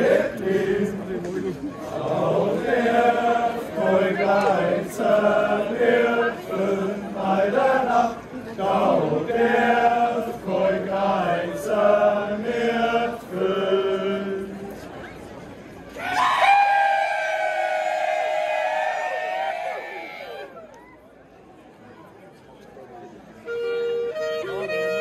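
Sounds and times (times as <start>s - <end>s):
group singing in unison: 0.0s - 14.6s.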